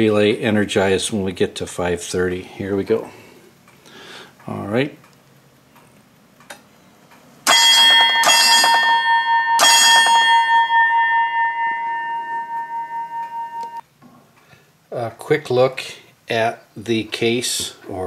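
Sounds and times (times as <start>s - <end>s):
ship's bell ringing: 7.5s - 13.8s.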